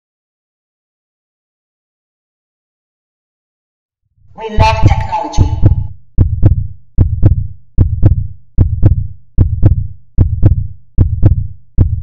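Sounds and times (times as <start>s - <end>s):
electronic heartbeat thumps: 4.6s - 12.0s.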